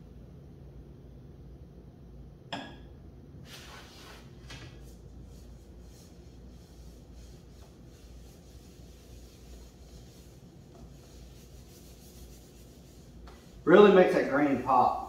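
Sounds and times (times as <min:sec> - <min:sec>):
low steady hum: 0:00.0 - 0:15.0
cloth rag rubbing wood: 0:03.5 - 0:15.0.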